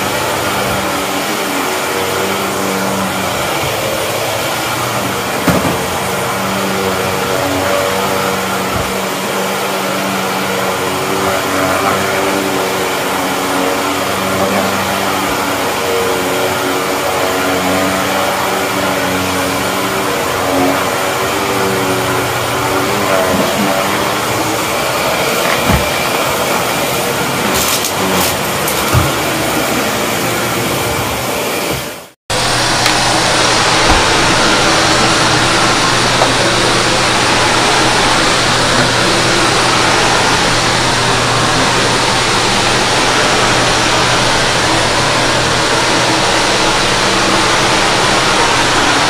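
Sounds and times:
vacuum cleaner running: 0.0s - 49.0s.

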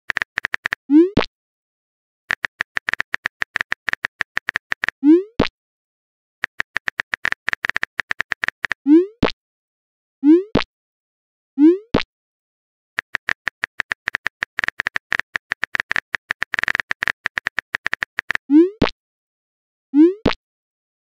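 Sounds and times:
phone keyboard typing clicks: 0.1s - 0.8s, 2.3s - 5.0s, 6.4s - 8.8s, 13.0s - 18.5s.

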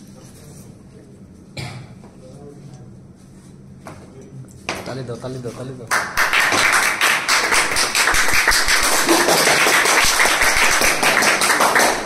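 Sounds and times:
people clapping rapidly: 5.9s - 12.0s.

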